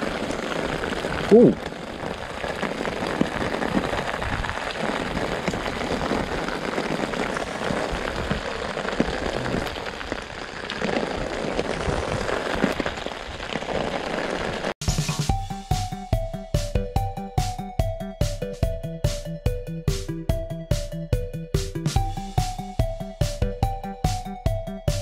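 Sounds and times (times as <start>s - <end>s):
heavy rain: 0.0s - 14.8s
raindrops ticking close by: 0.0s - 17.6s
music: 14.8s - 25.0s.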